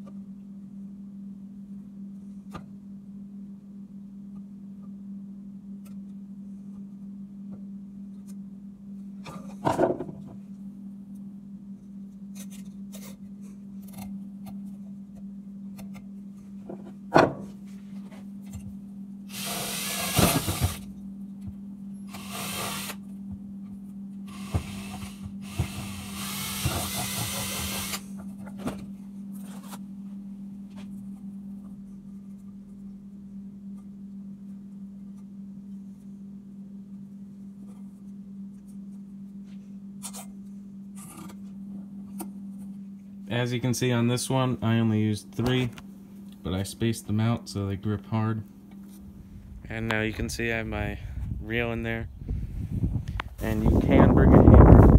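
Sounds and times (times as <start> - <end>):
steady low hum: 0.0 - 54.9
drill boring into plastic pipe: 19.3 - 20.8, 22.1 - 23.0, 24.3 - 28.1.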